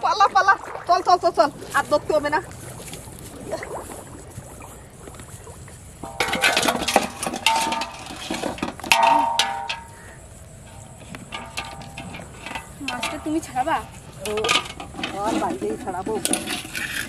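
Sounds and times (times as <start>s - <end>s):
metal basin clattering: 6.0s - 17.0s
metal clang: 6.0s - 17.0s.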